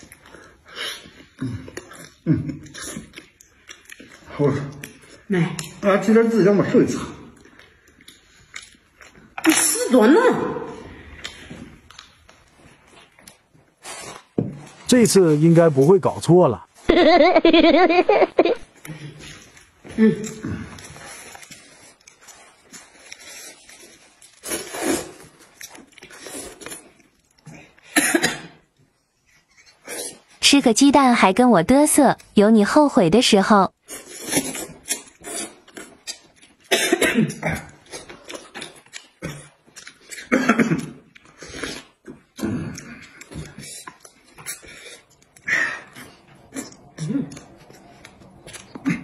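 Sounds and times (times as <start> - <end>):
people slurping noodles: 33.9 - 36.3, 37.4 - 47.7.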